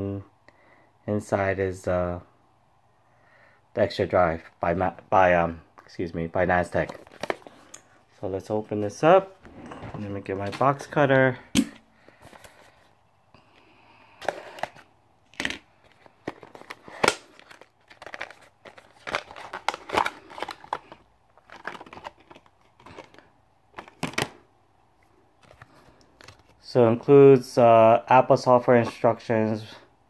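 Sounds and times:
plastic packaging crinkling: 14.2s - 24.2s.

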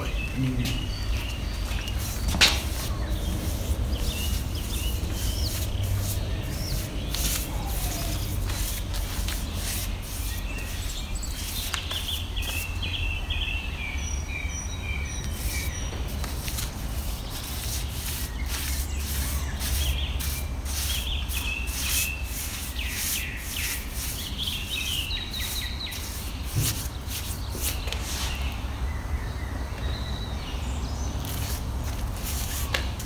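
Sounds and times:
low outdoor rumble: 0.0s - 11.4s
birds chirping: 0.0s - 33.0s
scratchy rubbing strokes: 1.2s - 12.7s, 15.3s - 28.4s, 31.3s - 32.8s.

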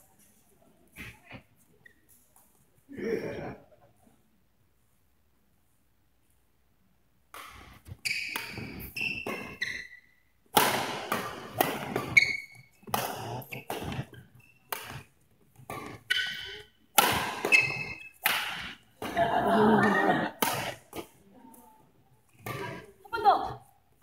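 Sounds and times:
racket hitting shuttlecock: 7.3s - 21.1s
sneaker squeaks on court floor: 7.5s - 10.3s, 11.8s - 15.0s, 15.7s - 18.7s.

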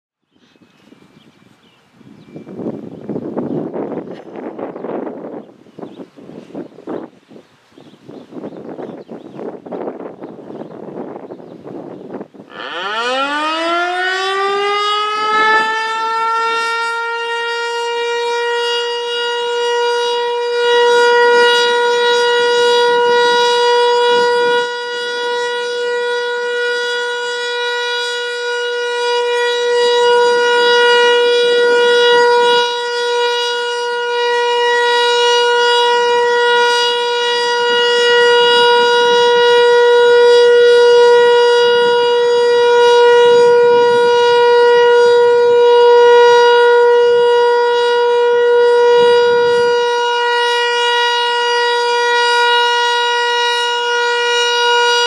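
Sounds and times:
steady tone warning siren: 0.2s - 55.0s.

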